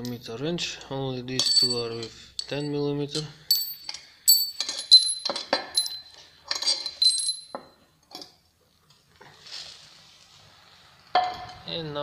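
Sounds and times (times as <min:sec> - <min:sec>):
metal tools clinking on metal: 0:01.3 - 0:08.4.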